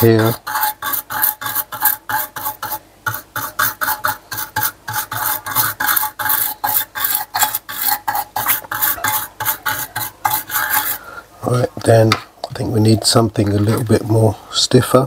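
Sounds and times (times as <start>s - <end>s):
brush scrubbing circuit board: 0.0s - 11.0s.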